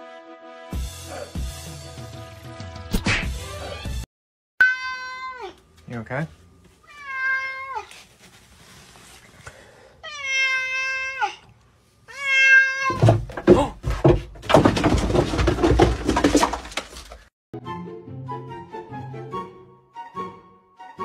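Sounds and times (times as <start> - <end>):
cat meowing: 4.6 - 5.6, 6.8 - 7.9, 10.0 - 11.4, 12.1 - 13.0
scuffling and knocks: 7.7 - 9.4, 12.9 - 17.3.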